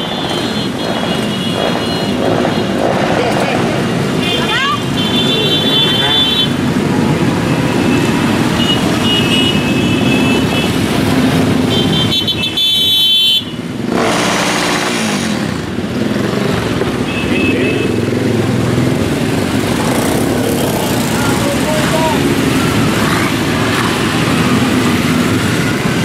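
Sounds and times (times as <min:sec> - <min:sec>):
motorcycles riding past: 0:00.0 - 0:12.4, 0:13.6 - 0:26.0
horns sounding: 0:04.0 - 0:15.1, 0:17.0 - 0:18.4.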